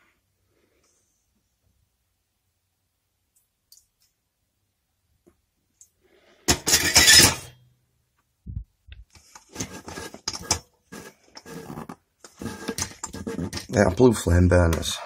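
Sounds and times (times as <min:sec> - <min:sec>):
metal burner parts rattling: 0:06.5 - 0:07.6.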